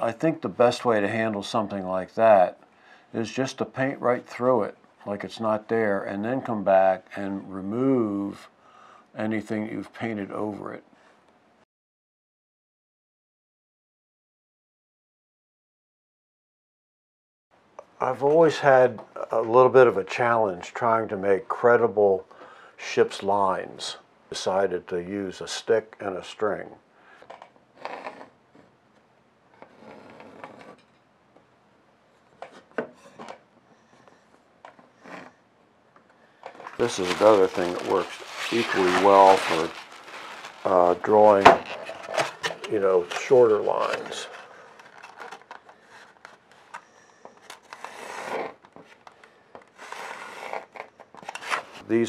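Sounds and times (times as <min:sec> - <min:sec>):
soft rubbing: 0:36.6 - 0:44.4.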